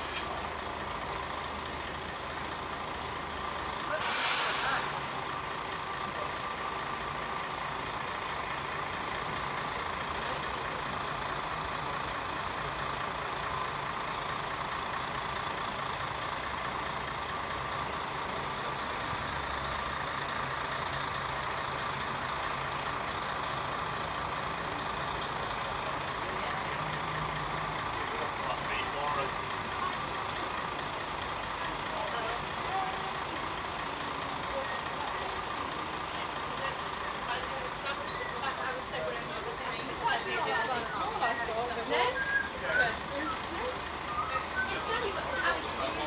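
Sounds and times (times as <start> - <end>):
air brake hiss: 0.0 - 0.4, 4.0 - 5.1
bus engine idling: 0.0 - 46.0.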